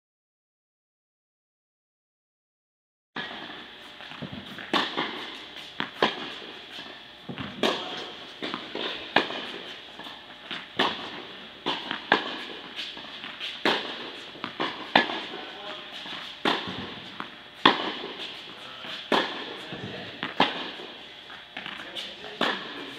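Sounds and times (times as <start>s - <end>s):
tennis ball pops off racket: 4.1s - 6.4s.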